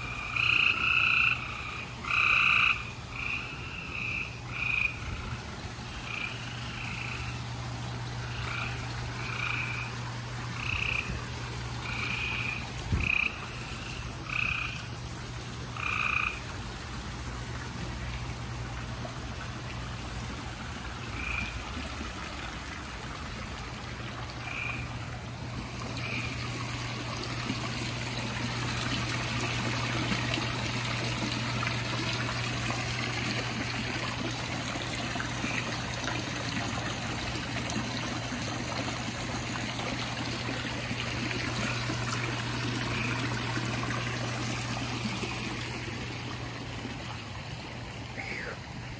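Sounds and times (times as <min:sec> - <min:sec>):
treefrogs calling: 0:00.0 - 0:07.4, 0:08.2 - 0:11.2, 0:11.8 - 0:14.9, 0:15.8 - 0:16.4, 0:21.0 - 0:21.7, 0:24.4 - 0:27.0
water trickling: 0:00.0 - 0:48.9.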